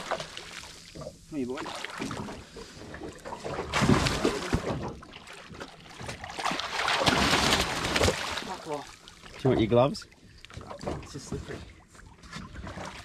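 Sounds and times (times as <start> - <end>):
fish thrashing and splashing: 0.0 - 9.4.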